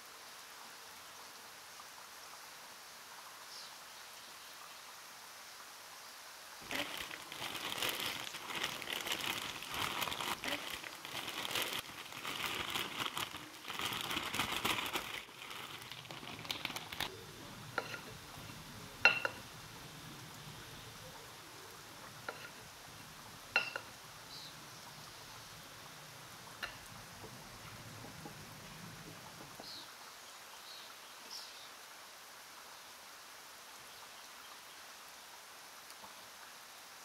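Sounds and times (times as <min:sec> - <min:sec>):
plastic bag crinkling: 0:06.6 - 0:17.1.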